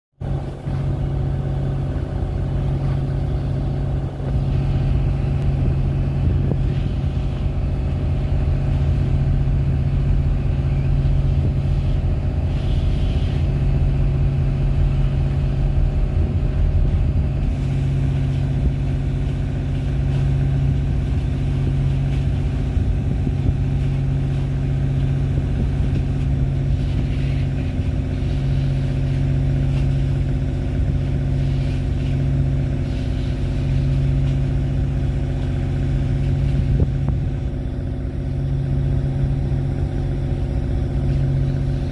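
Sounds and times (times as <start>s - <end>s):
boat engine droning: 0.2s - 41.9s.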